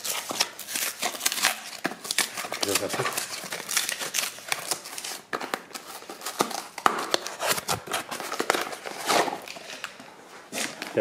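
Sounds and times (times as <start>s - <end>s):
cardboard and plastic rustling: 0.0s - 11.0s.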